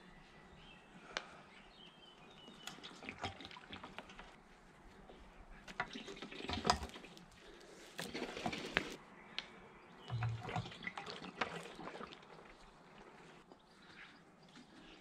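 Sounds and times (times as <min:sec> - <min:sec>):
liquid pouring into metal tank: 0:05.8 - 0:07.2.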